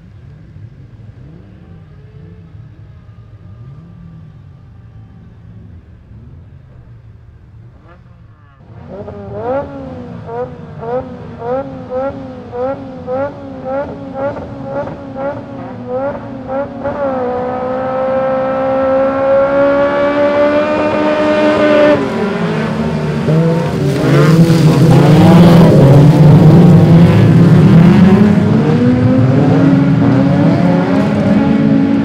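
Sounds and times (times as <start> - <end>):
stock car engines blipping: 0.0 - 32.0
engine revving: 7.7 - 32.0
pack of race cars accelerating: 7.7 - 32.0.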